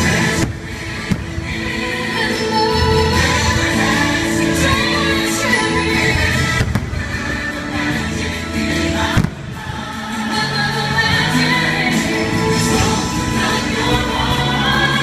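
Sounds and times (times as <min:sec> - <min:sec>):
choir singing show music: 0:00.0 - 0:15.0
firework bangs: 0:06.4 - 0:07.6, 0:09.1 - 0:09.9.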